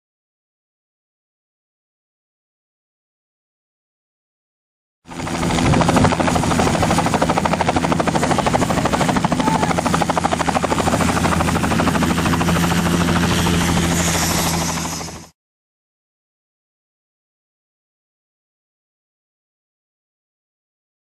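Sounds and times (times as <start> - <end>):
helicopter engine hum: 5.1 - 15.4
helicopter rotor beat: 5.1 - 15.4.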